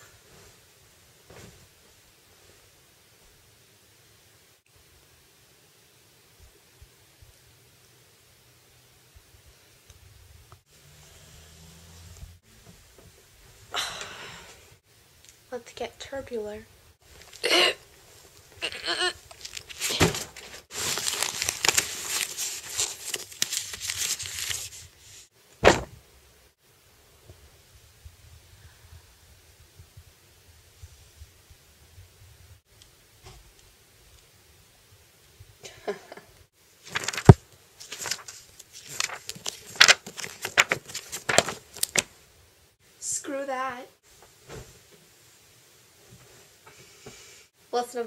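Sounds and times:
backpack and papers rustling: 0:19.2 - 0:25.9, 0:36.8 - 0:42.1
thump: 0:25.6 - 0:26.0, 0:44.5 - 0:44.8.

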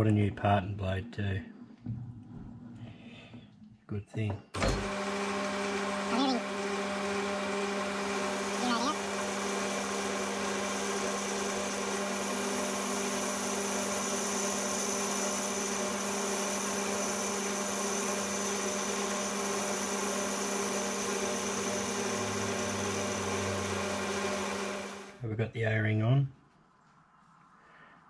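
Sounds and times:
metal lathe humming: 0:04.6 - 0:25.2.

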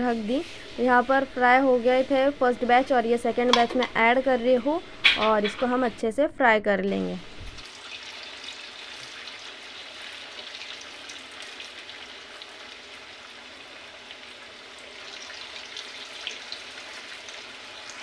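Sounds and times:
deep-frying in hot oil: 0:07.4 - 0:18.0.

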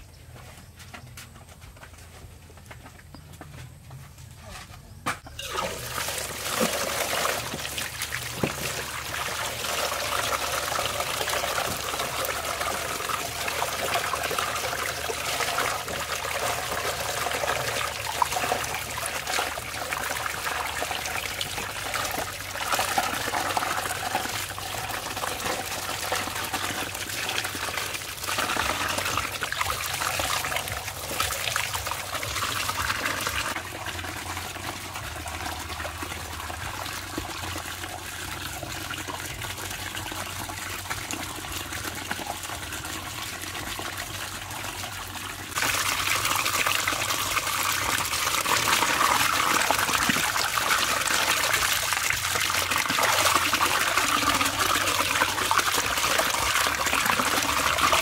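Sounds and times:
tap water splashing into basin: 0:05.3 - 0:24.6, 0:45.6 - 0:58.0.

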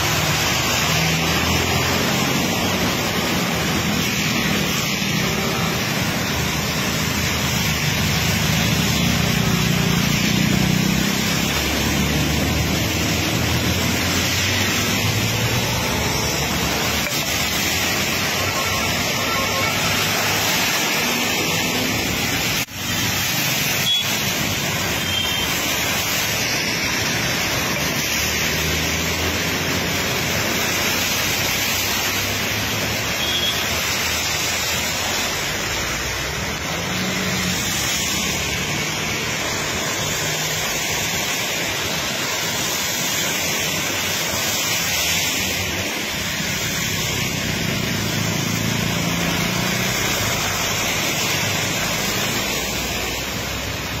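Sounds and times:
floodwater flowing: 0:00.0 - 0:54.0
heavy rain: 0:00.0 - 0:54.0
vehicle engines humming: 0:00.0 - 0:54.0.

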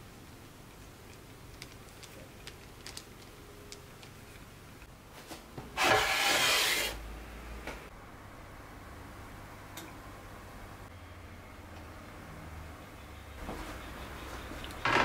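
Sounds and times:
metal baking tray scraping countertop: 0:05.8 - 0:07.0.

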